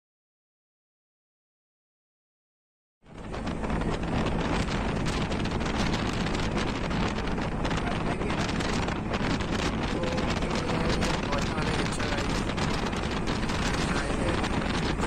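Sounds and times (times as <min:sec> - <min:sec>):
low road rumble: 0:03.0 - 0:15.0
wind buffeting microphone: 0:03.1 - 0:15.0.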